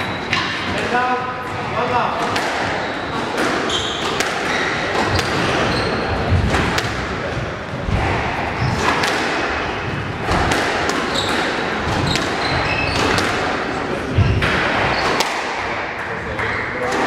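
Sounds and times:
squash ball smacking rackets and walls: 0:00.0 - 0:17.0
shoes squeaking on wooden floor: 0:02.7 - 0:06.5, 0:11.0 - 0:13.3.

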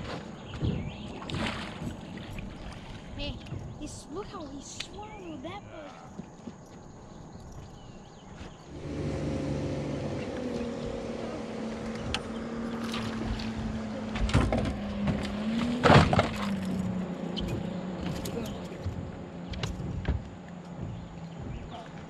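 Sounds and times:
electric boat motor humming: 0:08.7 - 0:22.0
knocking rushing noises: 0:17.4 - 0:22.0.

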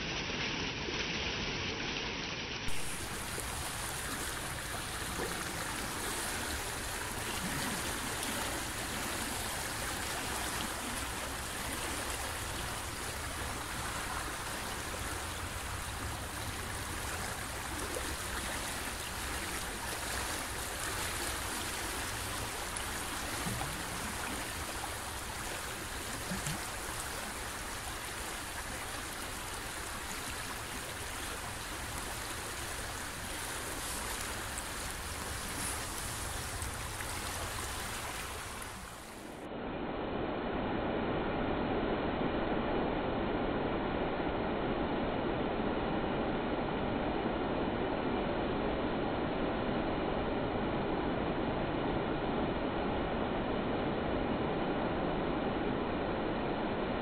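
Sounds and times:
fast-flowing river water: 0:02.7 - 0:39.5.

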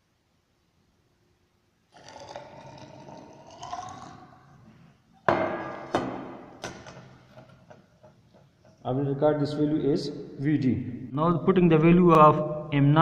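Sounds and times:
liquid pouring into glass cylinder: 0:01.9 - 0:04.6.

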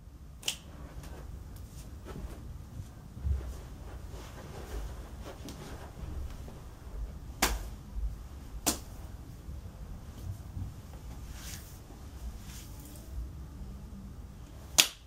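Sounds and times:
loud hand smacks: 0:08.6 - 0:08.9, 0:14.8 - 0:15.0.

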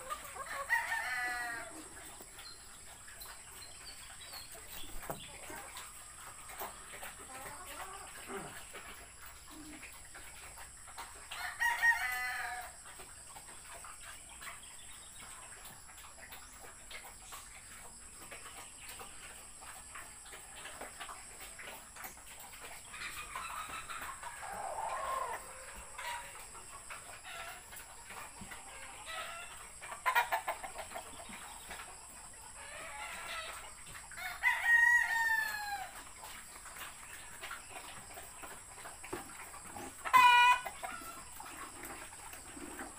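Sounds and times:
roosters crowing: 0:00.0 - 0:02.0, 0:11.3 - 0:12.8, 0:23.0 - 0:26.4, 0:32.6 - 0:36.0, 0:40.0 - 0:41.4.

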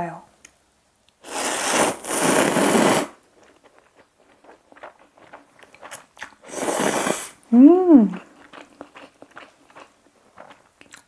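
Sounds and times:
person slurping noodles: 0:01.2 - 0:03.2, 0:06.4 - 0:07.4
faint chewing clicks: 0:03.4 - 0:06.4, 0:08.2 - 0:11.0.

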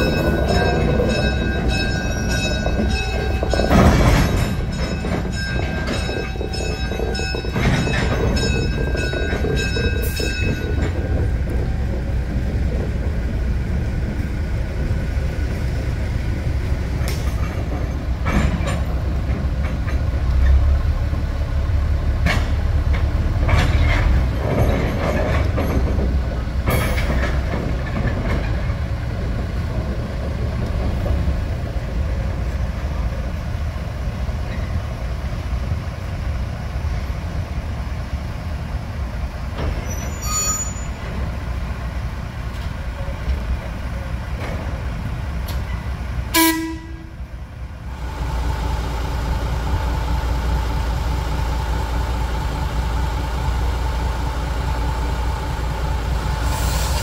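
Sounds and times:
diesel locomotive engine drone: 0:00.0 - 0:57.0.

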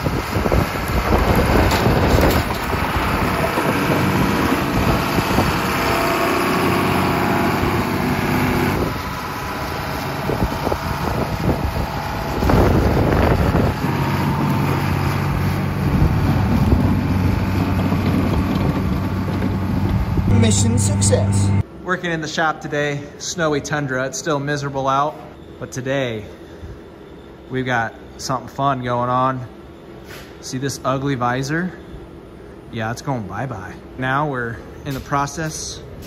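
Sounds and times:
vehicle engine running: 0:01.0 - 0:21.6.

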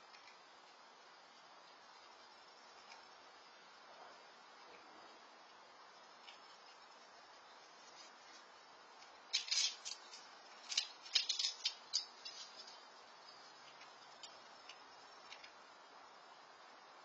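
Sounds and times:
faint background hiss: 0:00.0 - 0:17.0
squirrel cracking peanut shells: 0:09.3 - 0:12.8.

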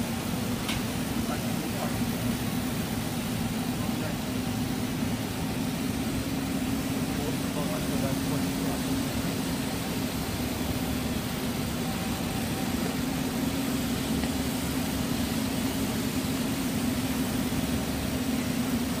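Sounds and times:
machinery low hum: 0:00.0 - 0:19.0.

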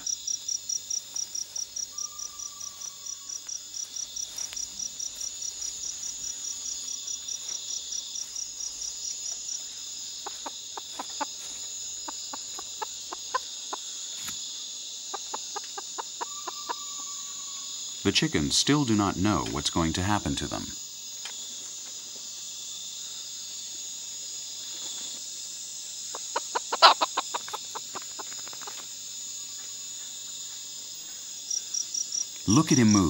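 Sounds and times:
cricket chirping in pulses: 0:00.0 - 0:33.0
insect chorus: 0:00.0 - 0:33.0
chicken clucking: 0:10.2 - 0:13.9, 0:15.1 - 0:17.0, 0:26.1 - 0:28.8.

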